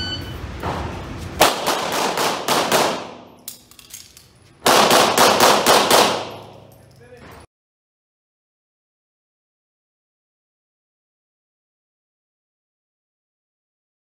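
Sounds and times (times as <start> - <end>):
pistol shots echoing indoors: 1.4 - 6.8.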